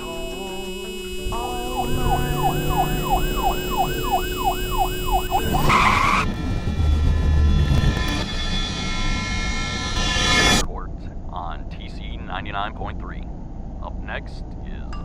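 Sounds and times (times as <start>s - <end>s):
emergency siren yelping: 0.0s - 6.3s
loud screech: 0.0s - 10.6s
low rumble: 6.2s - 15.0s.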